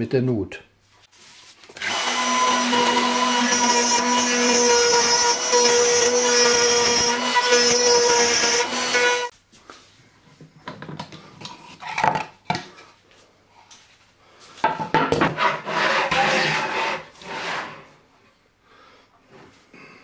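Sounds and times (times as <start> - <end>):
wood scraping on wood: 15.2 - 18.0.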